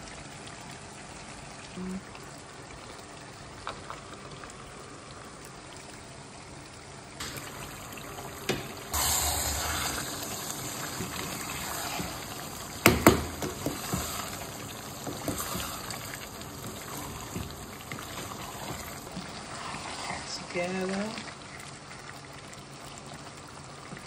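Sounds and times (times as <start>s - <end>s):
sauce bubbling: 0.0s - 24.0s
wooden spoon stirring sauce: 10.1s - 21.9s.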